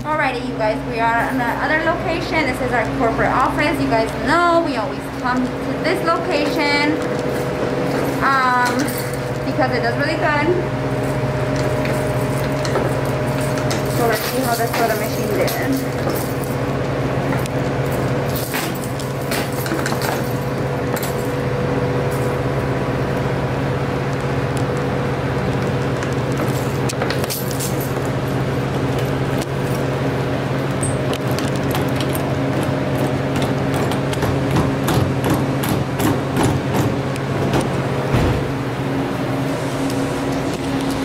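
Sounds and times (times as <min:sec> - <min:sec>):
steady low hum: 0:00.0 - 0:41.0
keys jangling against lock: 0:13.3 - 0:16.6.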